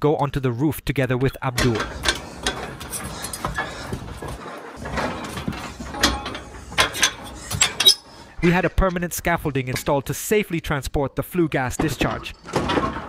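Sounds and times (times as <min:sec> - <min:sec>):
scuffing and rattling: 0:01.6 - 0:09.9
metal scaffolding clanks and knocks: 0:01.6 - 0:10.0, 0:11.8 - 0:13.0.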